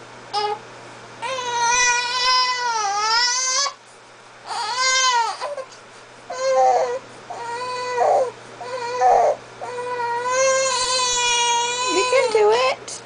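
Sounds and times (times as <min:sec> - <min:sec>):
baby fussing and crying: 0:04.5 - 0:12.3.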